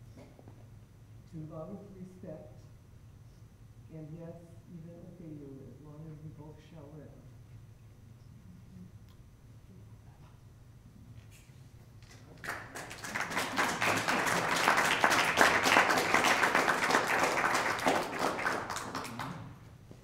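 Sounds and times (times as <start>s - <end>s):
audience applauding: 12.1s - 19.6s.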